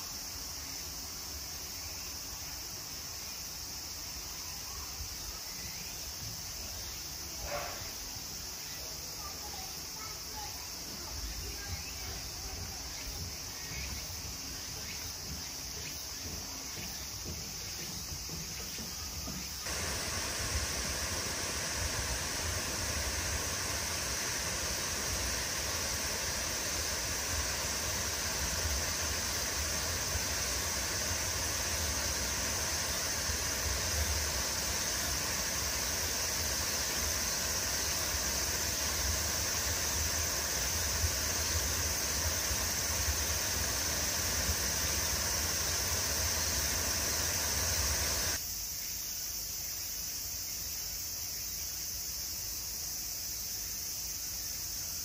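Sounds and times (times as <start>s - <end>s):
running water rushing: 19.6s - 48.4s.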